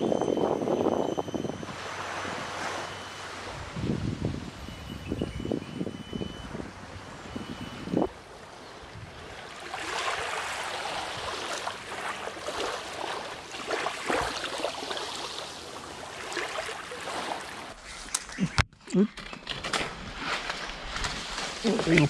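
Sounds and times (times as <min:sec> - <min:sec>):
water washing and trickling: 0:08.4 - 0:17.9.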